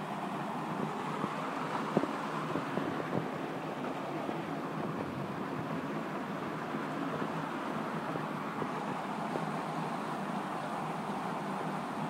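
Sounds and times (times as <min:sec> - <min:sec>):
floodwater gushing and splashing: 0:00.0 - 0:12.0.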